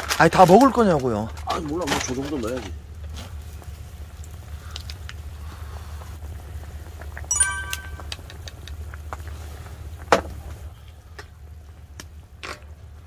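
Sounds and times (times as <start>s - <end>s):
ringing metallic clink: 7.3s - 8.2s.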